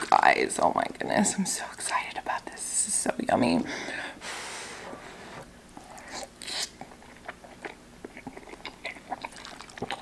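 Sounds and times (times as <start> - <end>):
person chewing food: 5.3 - 10.0.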